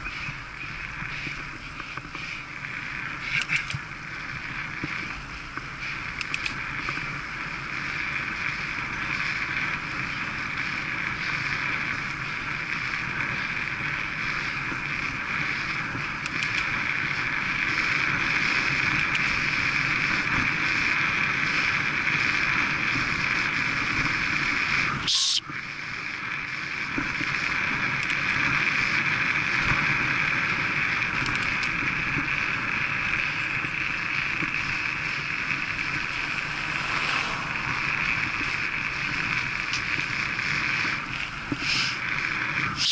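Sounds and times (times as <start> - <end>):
bike tyres on tarmac: 0.0 - 42.9
wind rushing over microphone: 26.3 - 42.9
short sharp hiss: 41.6 - 42.0.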